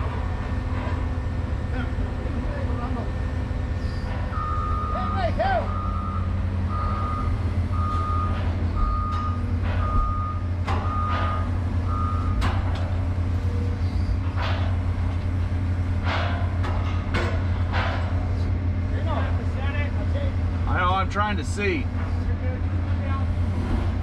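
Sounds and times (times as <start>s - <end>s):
diesel engine running: 0.0s - 24.0s
back-up alarm beeping: 4.3s - 12.5s
knocks and clanks: 7.9s - 11.6s, 12.2s - 13.5s, 14.2s - 19.5s.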